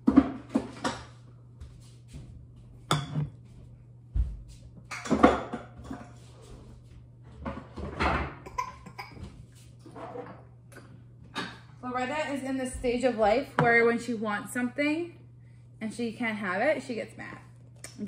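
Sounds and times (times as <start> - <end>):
steady low hum: 8.4 - 18.0.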